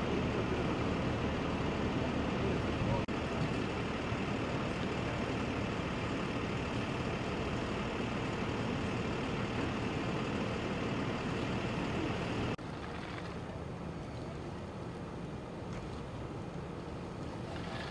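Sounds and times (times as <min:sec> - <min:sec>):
heavy engine idling: 0:00.0 - 0:12.6.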